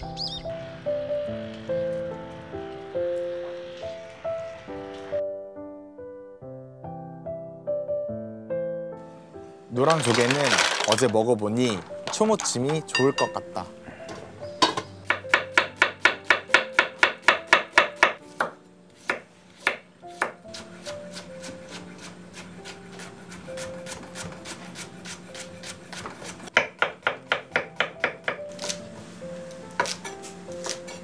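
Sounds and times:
soft background music: 0.0s - 31.0s
knife chopping on wooden board: 14.6s - 28.8s, 29.8s - 31.0s.

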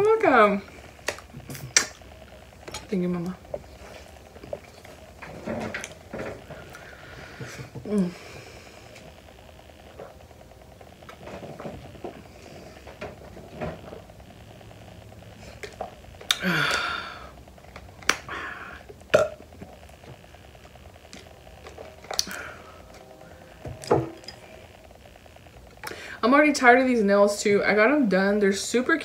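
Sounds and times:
person burping loudly: 1.0s - 2.0s, 16.2s - 17.4s, 18.0s - 19.7s.

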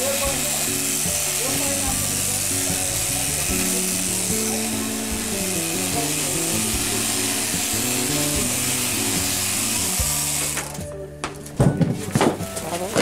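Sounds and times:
electric shears buzzing: 0.0s - 11.0s
music with stepping bass line: 5.1s - 10.4s.

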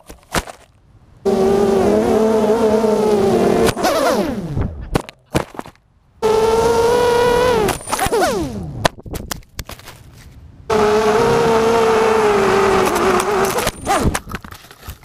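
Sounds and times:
drone motors whining: 1.2s - 4.8s, 6.2s - 8.8s, 10.7s - 14.2s.

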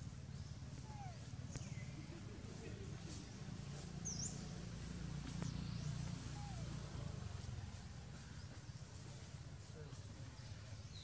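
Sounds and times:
low outdoor rumble: 0.0s - 11.0s
bird chirps: 0.2s - 2.1s, 4.0s - 7.0s.

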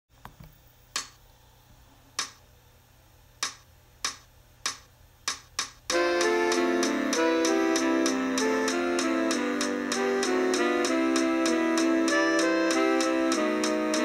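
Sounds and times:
band playback track: 5.3s - 14.0s.

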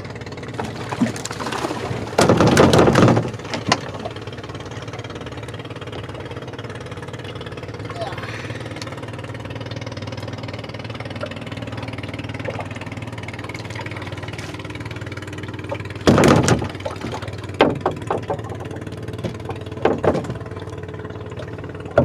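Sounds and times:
boat engine running: 0.0s - 22.0s
sharp knocks: 2.2s - 3.9s, 16.0s - 20.4s.

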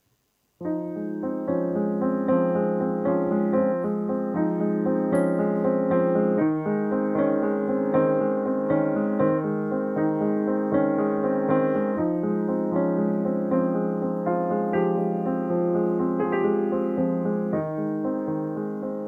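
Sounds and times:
piano playing repeated chords: 0.6s - 19.0s.

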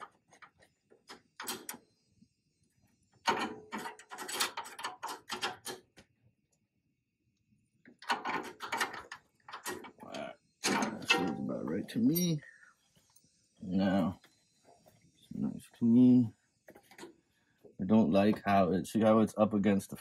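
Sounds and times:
metal tools clinking and rattling: 10.6s - 12.4s.

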